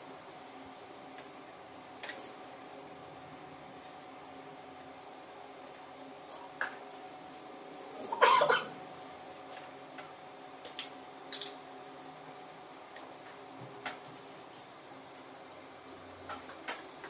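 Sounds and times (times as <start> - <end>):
person coughing: 8.0 - 8.8.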